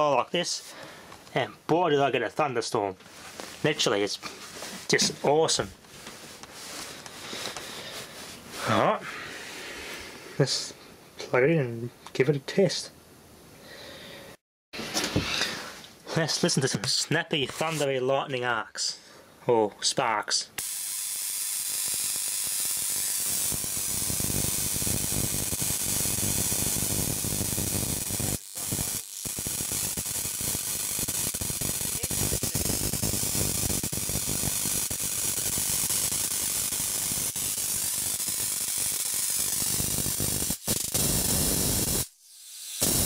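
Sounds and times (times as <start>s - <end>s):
electric arcs crackling and snapping: 17.4s - 17.9s, 20.6s - 43.0s.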